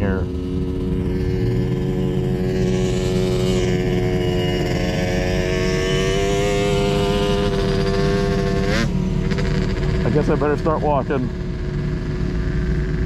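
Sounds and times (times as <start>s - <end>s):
sand rail engine running: 0.0s - 13.0s.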